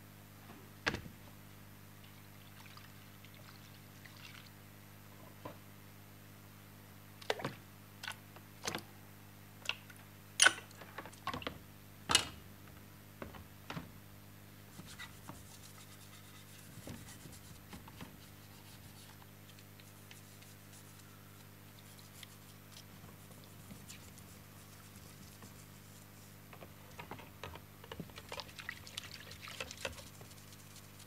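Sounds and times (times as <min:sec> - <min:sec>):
brush scrubbing metal underwater: 0:19.8 - 0:26.4, 0:28.2 - 0:31.0.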